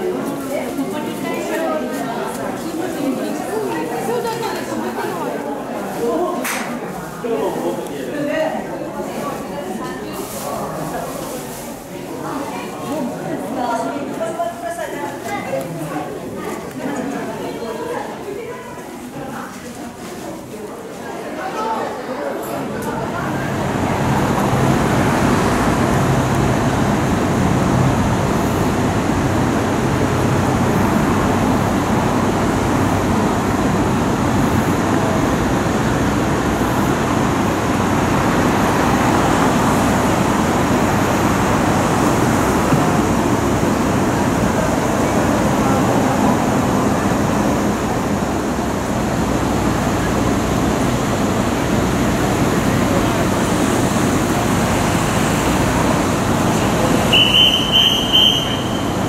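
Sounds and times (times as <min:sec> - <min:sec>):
road traffic: 0:22.9 - 0:59.0
low engine hum: 0:23.0 - 0:59.0.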